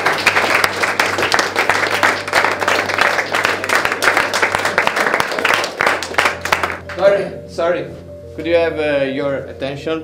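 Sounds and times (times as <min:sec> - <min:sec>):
people applauding: 0:00.0 - 0:07.0.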